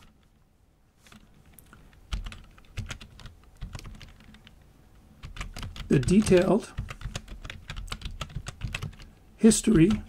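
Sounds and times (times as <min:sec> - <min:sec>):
typing on computer keyboard: 0:01.1 - 0:04.6, 0:05.2 - 0:09.1, 0:09.7 - 0:10.0.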